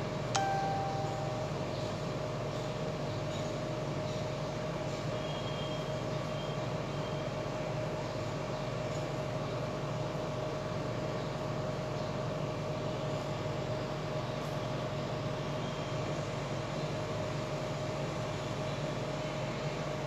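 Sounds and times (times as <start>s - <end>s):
constant low hum: 0.0s - 20.0s
faint short high tones: 0.4s - 1.9s
thin steady tone: 0.4s - 2.0s.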